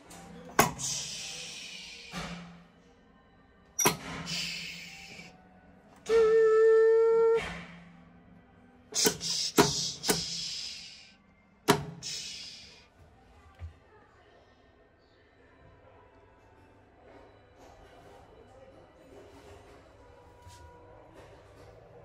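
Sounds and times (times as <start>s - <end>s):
hiss of air: 0.6s - 2.3s, 4.2s - 5.3s, 9.0s - 11.1s, 11.7s - 12.8s.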